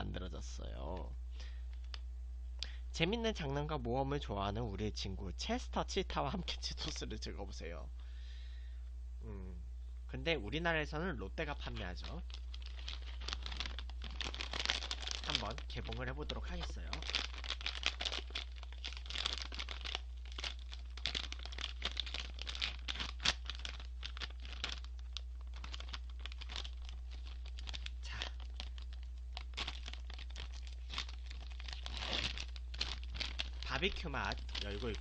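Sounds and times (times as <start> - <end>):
plastic snack bag crinkling: 11.6 - 35.0.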